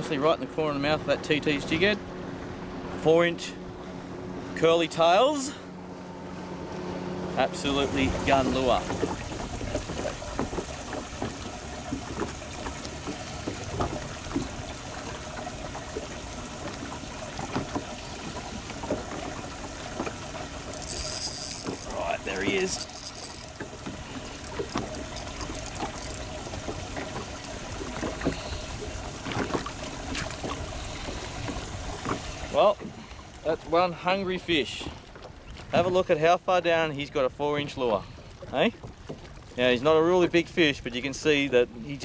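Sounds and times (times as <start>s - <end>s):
reel drag ticking: 17.5s - 32.2s
spinning reel being wound: 20.7s - 23.6s, 24.4s - 26.6s
scattered clicks: 20.8s - 23.6s, 24.4s - 26.6s.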